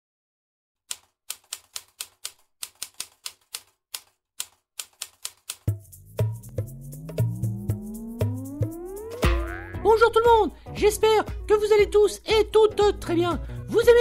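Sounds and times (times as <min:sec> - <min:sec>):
typewriter keys clacking: 0:00.9 - 0:05.7
tone rising in pitch: 0:06.1 - 0:10.0.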